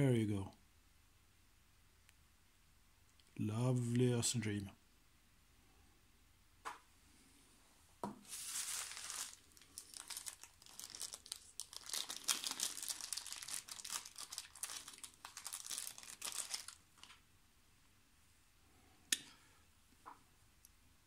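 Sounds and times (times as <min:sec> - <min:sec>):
plastic wrapping crinkling: 0:08.2 - 0:17.2.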